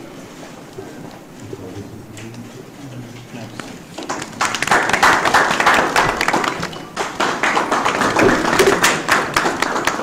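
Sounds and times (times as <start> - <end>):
sharp clicks and claps: 3.6 - 10.0.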